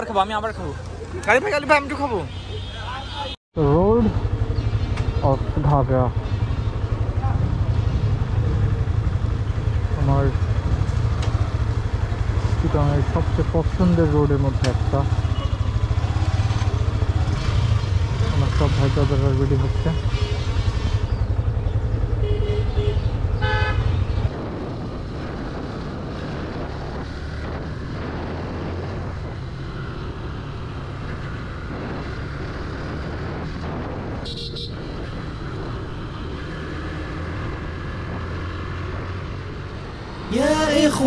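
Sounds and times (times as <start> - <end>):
motorcycle engines running: 3.6 - 41.0.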